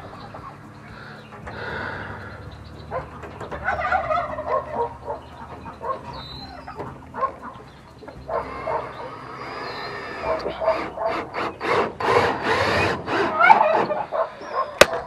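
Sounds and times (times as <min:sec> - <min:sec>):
turkey gobbling: 0:00.2 - 0:11.4, 0:13.2 - 0:15.0.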